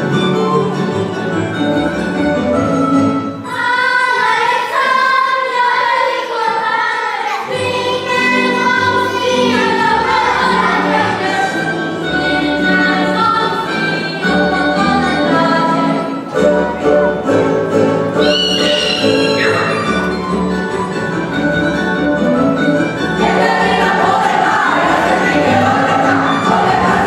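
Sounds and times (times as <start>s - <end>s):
folk dance music: 0.0s - 27.0s
group of voices singing: 3.4s - 17.6s, 23.1s - 27.0s.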